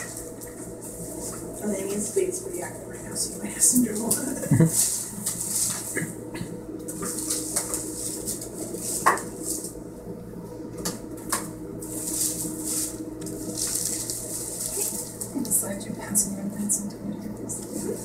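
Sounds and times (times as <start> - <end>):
paper rustling: 4.0 - 6.0, 6.9 - 9.8, 11.8 - 15.5.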